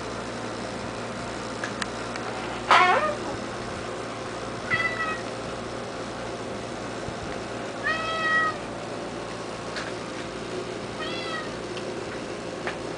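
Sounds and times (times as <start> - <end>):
cat meowing: 2.7 - 3.3, 4.7 - 5.3, 7.8 - 8.7, 11.0 - 11.6.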